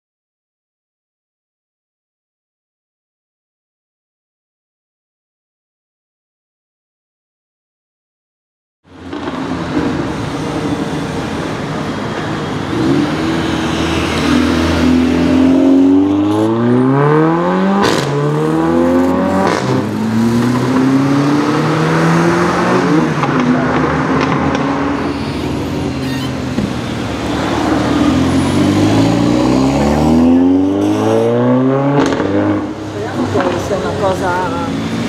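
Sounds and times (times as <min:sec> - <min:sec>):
car engine revving and accelerating: 0:12.4 - 0:35.0.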